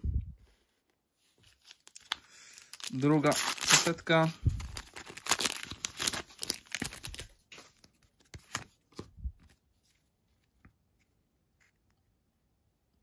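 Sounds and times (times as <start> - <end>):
plastic wrapper crinkling and tearing: 1.4 - 8.8.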